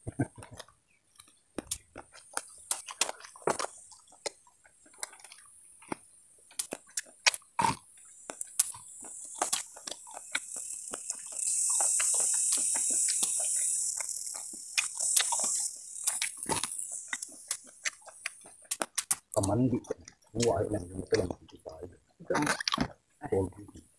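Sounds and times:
chewing corn on the cob: 0:00.0 - 0:23.0
high-pitched buzz: 0:08.3 - 0:18.5.

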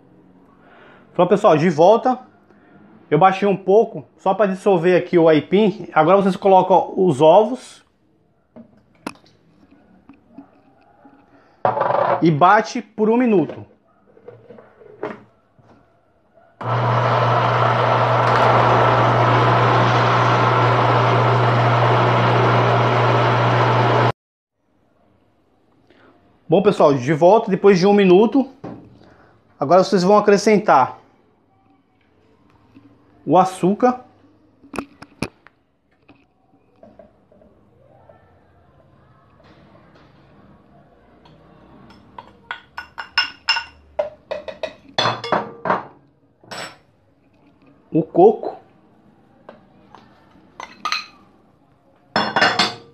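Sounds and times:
blender motor whirring: 0:16.6 - 0:24.1
metal spoon clinking on glass: 0:41.3 - 0:45.6.

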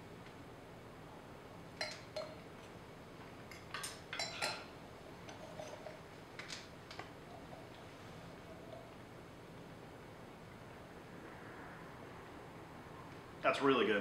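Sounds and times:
forks clinking on a plate: 0:01.8 - 0:02.4, 0:03.5 - 0:04.7.

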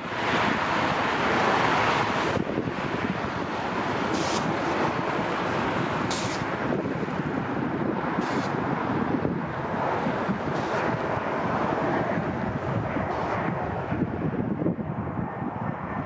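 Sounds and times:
jet engine rumble: 0:00.0 - 0:16.0
wind buffeting microphone: 0:00.0 - 0:16.0
short high hisses: 0:04.2 - 0:04.5, 0:06.1 - 0:06.5.

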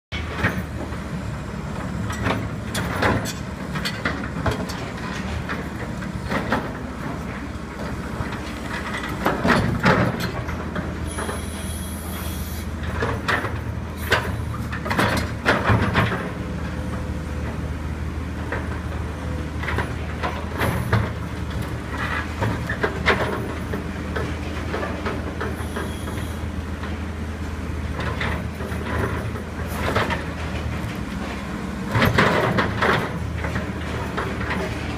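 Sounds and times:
excavator diesel engine running: 0:00.1 - 0:34.9
high metallic screech: 0:25.6 - 0:26.4.

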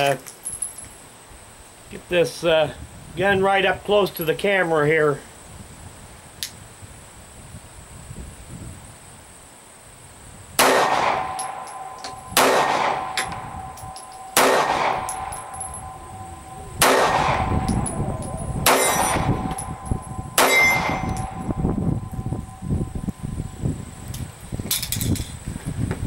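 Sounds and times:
pistol shots with metallic ring: 0:10.6 - 0:23.0.

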